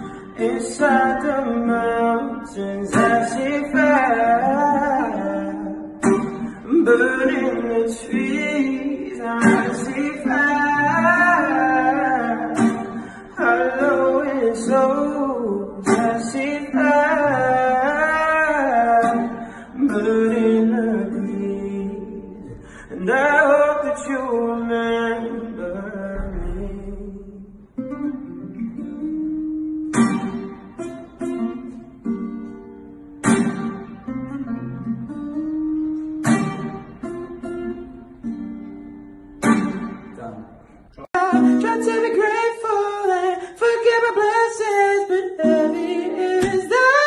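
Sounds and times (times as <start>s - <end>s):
man singing long notes: 0.0s - 27.6s
acoustic guitar: 0.0s - 47.0s.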